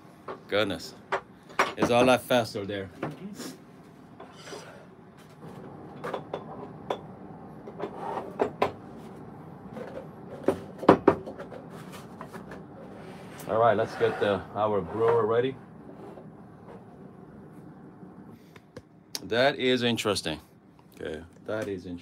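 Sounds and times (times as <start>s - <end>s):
cloth rubbing on scale: 12.9s - 15.3s.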